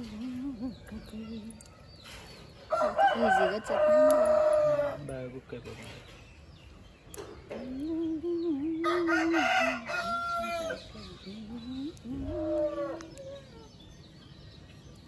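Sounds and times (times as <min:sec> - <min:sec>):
rooster crowing: 0:02.7 - 0:05.0, 0:08.8 - 0:10.9.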